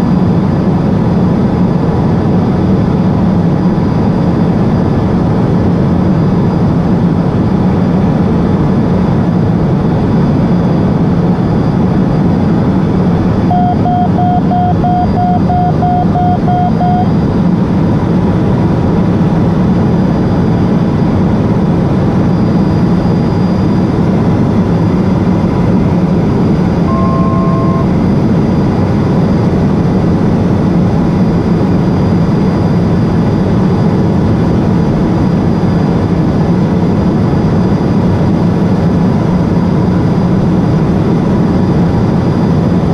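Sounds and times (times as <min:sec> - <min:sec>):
turboprop engine drone: 0:00.0 - 0:42.9
cockpit alert beeping: 0:13.5 - 0:17.1, 0:26.9 - 0:28.0
two-note electronic tone: 0:13.5 - 0:17.2, 0:26.8 - 0:28.2.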